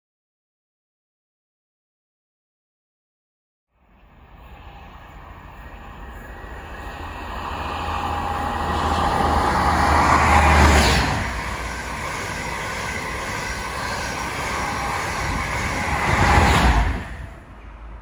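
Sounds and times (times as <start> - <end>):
diesel train engine whine: 3.7 - 18.0
train coaches rushing past: 3.8 - 18.0.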